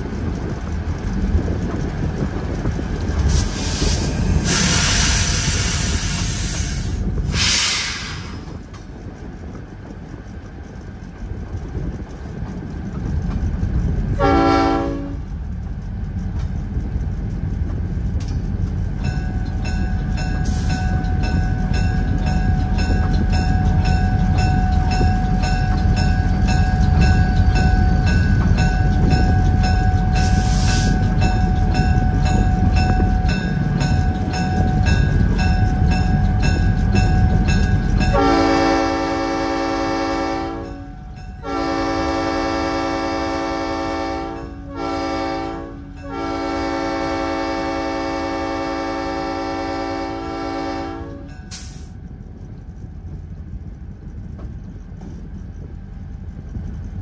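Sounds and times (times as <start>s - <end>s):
wheels clicking over rail joints: 0.0s - 44.7s
train rumbling past: 0.0s - 57.0s
locomotive air horn: 4.4s - 8.4s, 14.2s - 15.3s, 38.1s - 51.3s.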